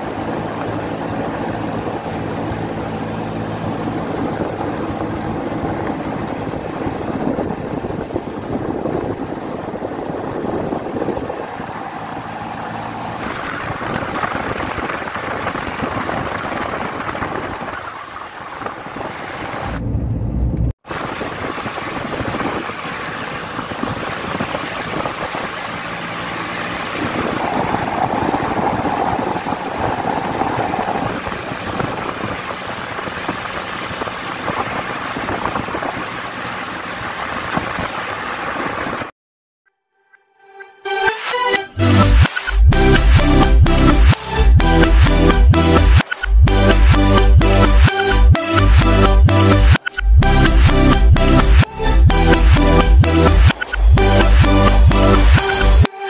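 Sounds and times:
car engine and tyre noise: 0:00.0 - 0:39.1, 0:41.3 - 0:56.0.

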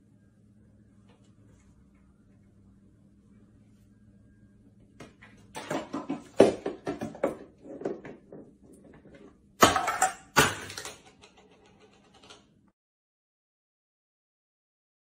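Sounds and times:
cans and bowl clattering: 0:05.5 - 0:08.4, 0:09.0 - 0:12.4
objects crashing to the floor: 0:05.5 - 0:11.4.

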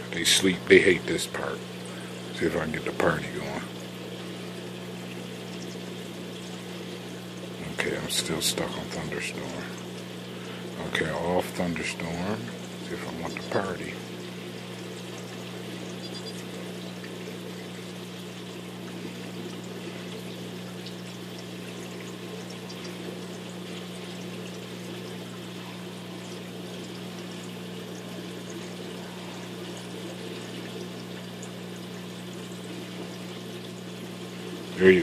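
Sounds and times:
pumps humming: 0:00.0 - 0:35.0
water pouring and trickling: 0:00.0 - 0:35.0.

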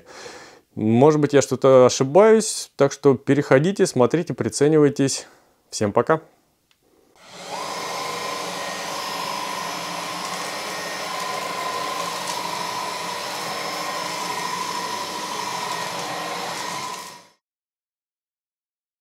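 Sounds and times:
cordless vacuum cleaner running: 0:07.2 - 0:17.4.

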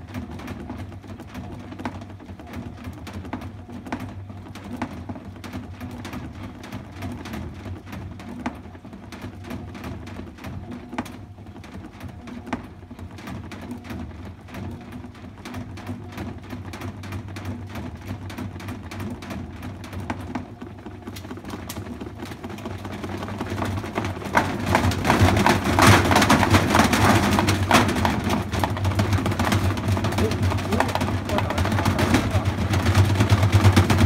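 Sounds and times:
washing machine motor hum: 0:00.0 - 0:34.0.

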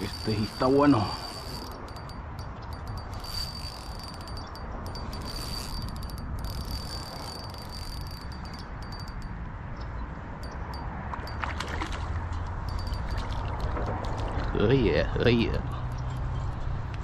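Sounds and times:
insects trilling: 0:00.0 - 0:09.1.

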